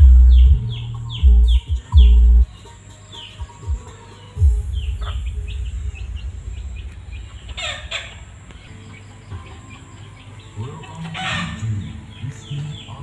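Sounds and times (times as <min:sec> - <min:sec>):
bass-heavy music from subwoofers: 0:00.0 - 0:02.5, 0:03.4 - 0:08.5
birds chirping: 0:00.0 - 0:13.0
harsh bird calls: 0:00.0 - 0:13.0.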